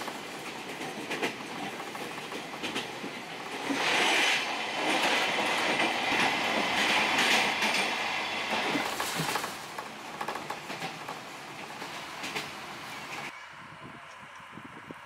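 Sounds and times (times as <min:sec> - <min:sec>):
train wheels running on rails: 0:00.0 - 0:13.4
clicks over rail joints: 0:08.7 - 0:13.3.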